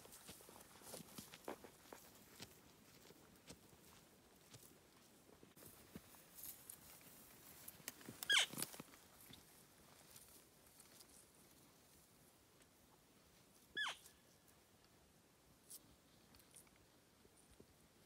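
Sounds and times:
faint footfalls: 0:00.0 - 0:09.4.

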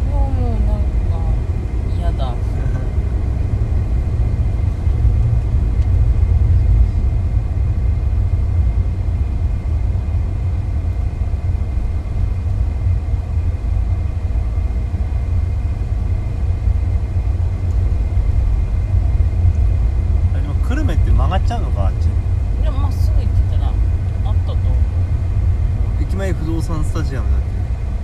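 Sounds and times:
car road and engine rumble: 0:00.0 - 0:28.0.

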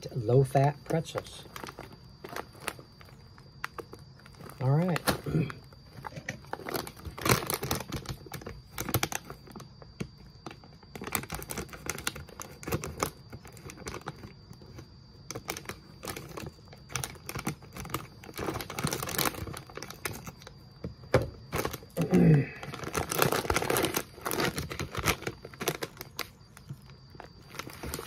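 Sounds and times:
plastic snack bag crinkling: 0:00.4 - 0:20.6, 0:21.4 - 0:28.0.

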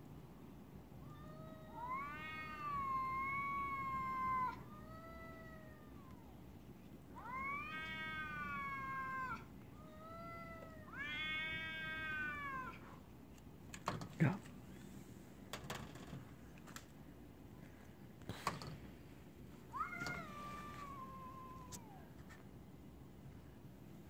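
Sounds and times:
cats yowling: 0:01.0 - 0:06.4, 0:07.1 - 0:13.0, 0:19.7 - 0:22.1.

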